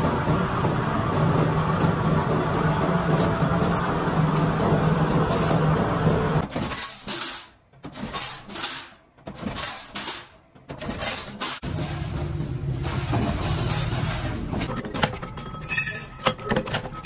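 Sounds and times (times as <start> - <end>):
workshop machinery humming: 0.0 - 17.0
metallic clinks and clatter: 14.6 - 17.0.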